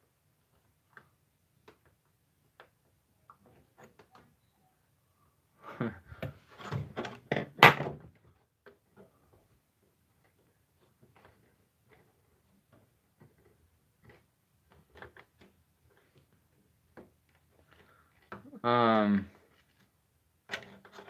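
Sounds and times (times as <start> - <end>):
knocks and clatter of handling: 19.3 - 21.0.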